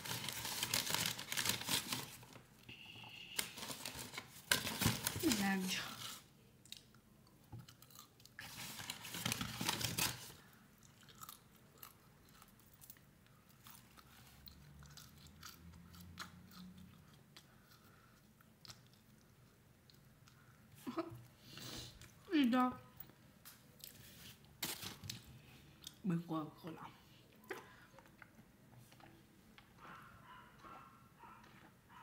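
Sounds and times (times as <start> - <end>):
food crunching: 6.0 - 8.8, 10.7 - 20.5
person chewing food: 6.6 - 8.5, 10.6 - 22.2.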